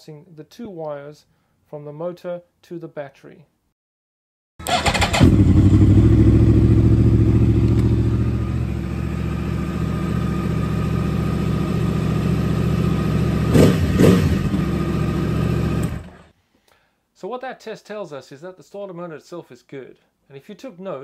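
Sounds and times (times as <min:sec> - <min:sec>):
engine revving bursts: 0:04.6 - 0:08.4, 0:13.2 - 0:16.3
motorcycle engine idling: 0:04.8 - 0:13.7.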